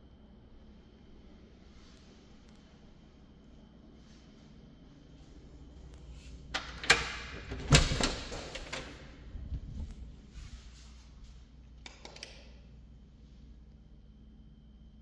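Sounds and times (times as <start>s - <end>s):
door handle and latch clicking: 6.6s - 9.0s
door swinging open: 6.6s - 9.1s.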